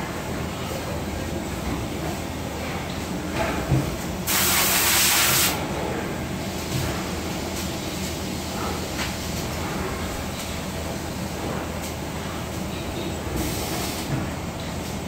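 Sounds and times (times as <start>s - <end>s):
factory floor hum: 0.0s - 15.0s
loud hiss: 4.3s - 5.6s.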